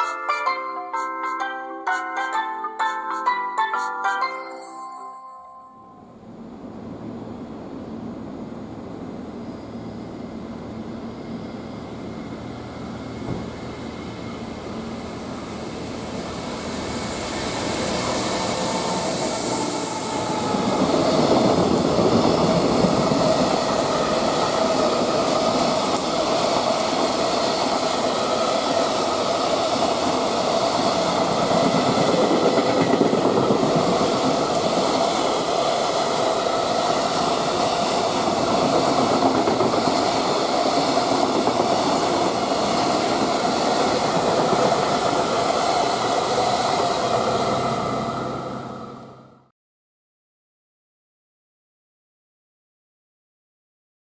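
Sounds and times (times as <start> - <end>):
electric locomotive passing: 0.0 - 49.5
high hiss: 13.0 - 21.9.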